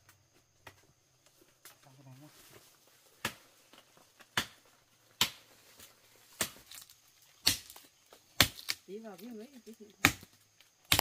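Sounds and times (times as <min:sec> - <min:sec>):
hoe striking into soil: 0:06.4 - 0:07.8.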